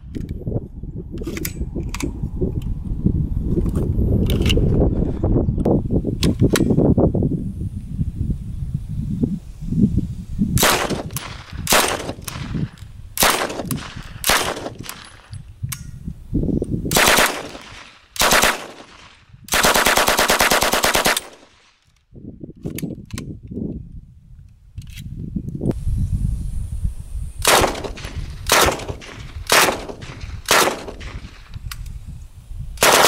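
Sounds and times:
submachine gun bursts: 0:16.9 - 0:21.5.

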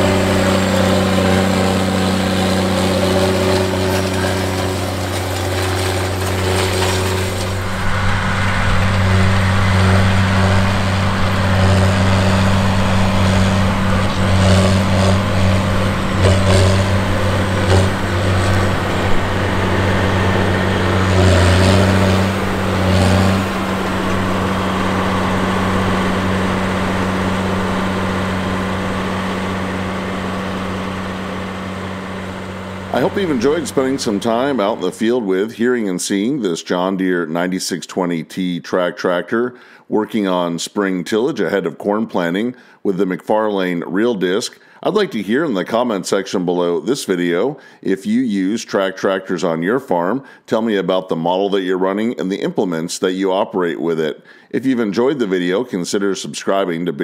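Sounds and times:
rattles and clanks: 0:00.0 - 0:34.8
tractor diesel engine under load: 0:00.0 - 0:36.9.

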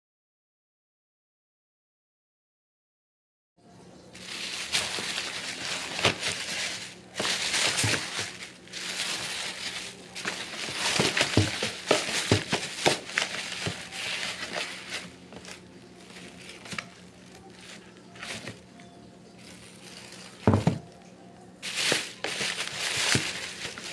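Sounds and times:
plastic bags rustling: 0:04.1 - 0:23.9
packaging knocks: 0:04.2 - 0:18.6, 0:19.4 - 0:20.9, 0:21.6 - 0:23.9.

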